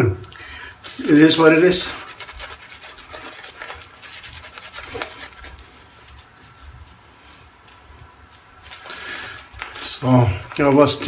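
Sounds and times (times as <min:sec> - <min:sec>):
shaving brush rubbing lather: 0:00.8 - 0:11.0.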